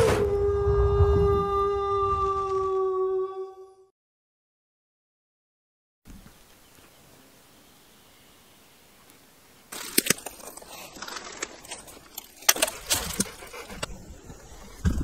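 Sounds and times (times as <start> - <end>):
footsteps crunching on pine needles: 9.7 - 12.5.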